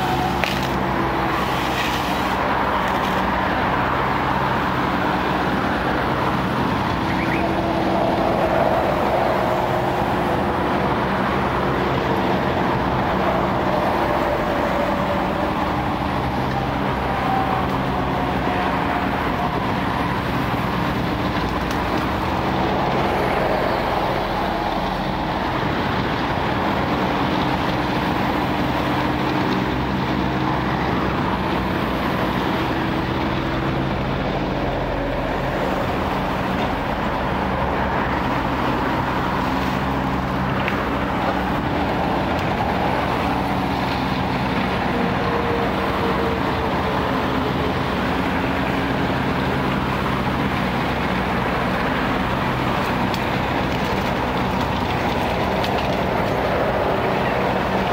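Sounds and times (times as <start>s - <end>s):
diesel engine running: 0.0s - 57.9s.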